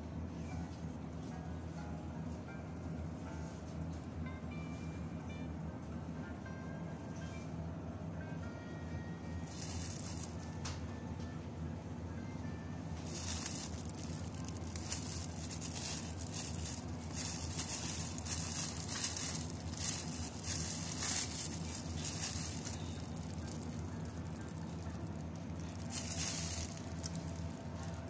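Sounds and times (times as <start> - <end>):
steady low hum: 0.0 - 28.0
plastic wrap crinkling: 9.4 - 10.8, 13.0 - 28.0.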